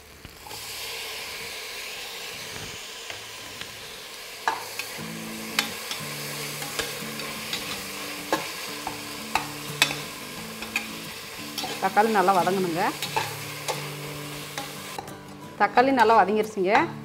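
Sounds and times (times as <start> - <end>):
tomatoes sizzling in oil: 0.0 - 17.0
spatula scraping metal pot: 5.6 - 15.1.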